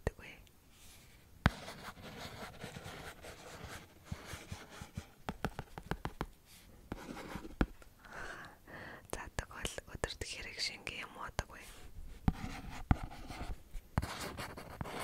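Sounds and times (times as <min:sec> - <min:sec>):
pen scratching on paper: 0:01.4 - 0:06.3, 0:06.9 - 0:07.7, 0:12.2 - 0:15.0.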